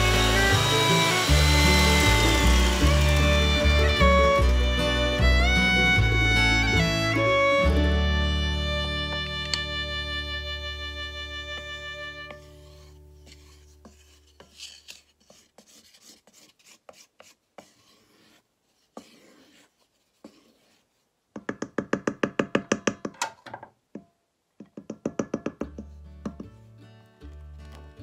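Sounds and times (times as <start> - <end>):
background music: 0.0 - 13.2
wooden spoon beating batter in bowl: 12.3 - 23.2.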